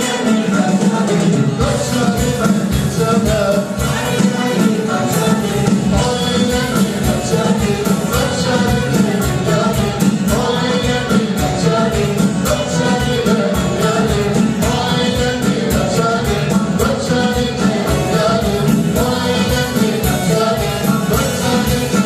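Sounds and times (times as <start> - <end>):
keyboard: 0.0 - 22.0
man singing: 0.0 - 22.0.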